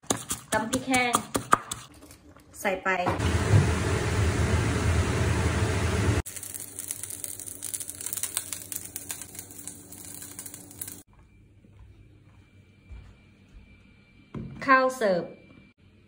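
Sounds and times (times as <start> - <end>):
omelette frying in oil: 6.2 - 11.1.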